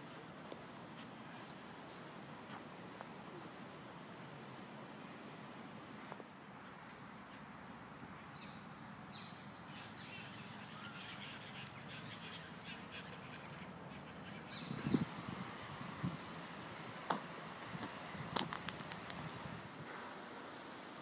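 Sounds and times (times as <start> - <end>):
waterbirds calling faintly: 0.6 - 2.1, 6.1 - 19.5.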